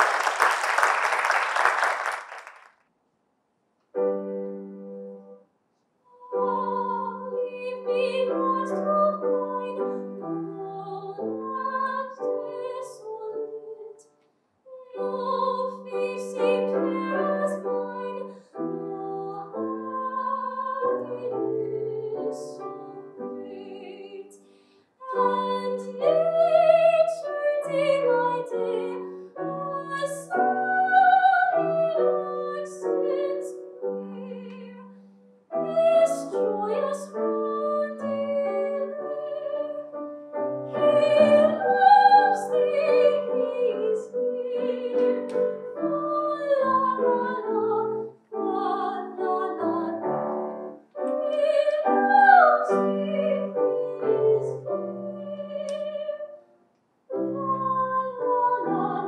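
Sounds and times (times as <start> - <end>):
piano: 0.0 - 2.4, 3.9 - 5.5, 6.1 - 59.0
woman singing classical style: 6.1 - 14.0, 14.7 - 24.4, 25.0 - 56.4, 57.1 - 59.0
singer breaths: 24.4 - 25.0.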